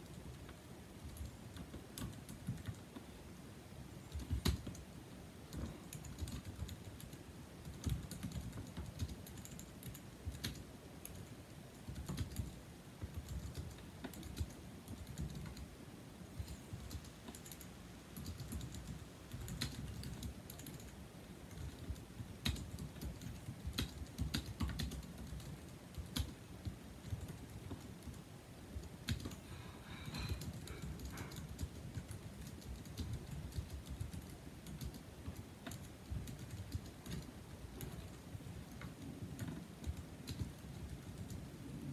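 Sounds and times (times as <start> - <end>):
rapid keyboard typing: 0.0 - 3.1, 4.0 - 4.9, 5.5 - 15.7, 16.4 - 41.9.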